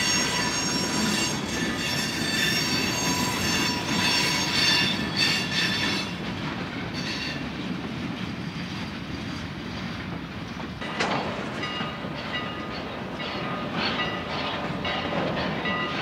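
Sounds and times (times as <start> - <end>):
high wheel squeals: 0.0 - 6.2
freight wheels rumbling on rail: 0.0 - 16.0.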